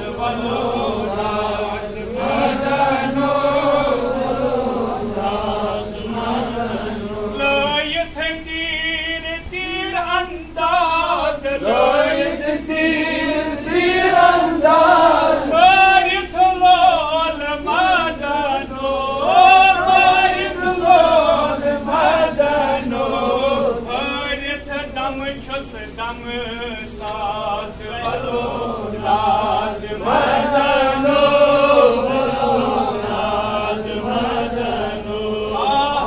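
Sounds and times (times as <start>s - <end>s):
man chanting melodic recitation: 5.5s - 13.6s, 15.1s - 21.7s.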